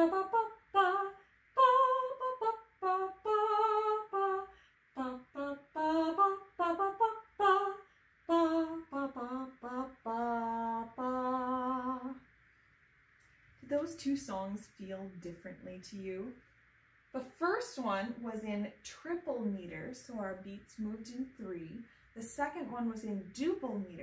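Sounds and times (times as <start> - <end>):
woman singing wordless tune: 0.0 - 12.3.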